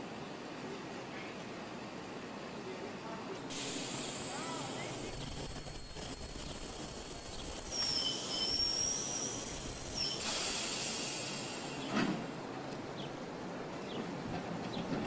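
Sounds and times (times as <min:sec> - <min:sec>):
streetcar hum with high whine: 0:00.0 - 0:15.0
air hissing: 0:03.5 - 0:12.3.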